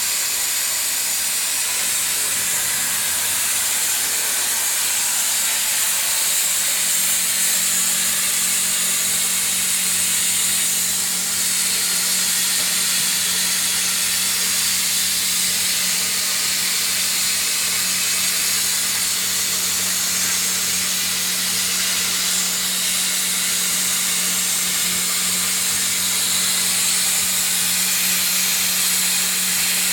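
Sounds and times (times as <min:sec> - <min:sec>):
plasma torch hissing: 0:00.0 - 0:16.5.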